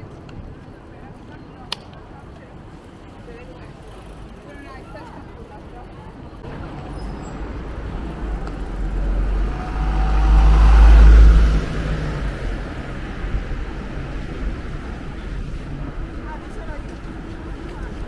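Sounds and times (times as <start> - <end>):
city traffic noise: 0.0 - 18.0
car driving past: 6.6 - 13.2.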